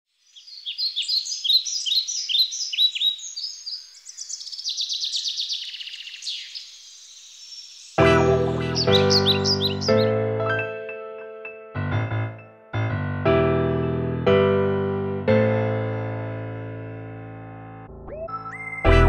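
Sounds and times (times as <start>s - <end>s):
songbirds chirping and trilling: 0.1s - 10.1s
piano music: 8.0s - 19.0s.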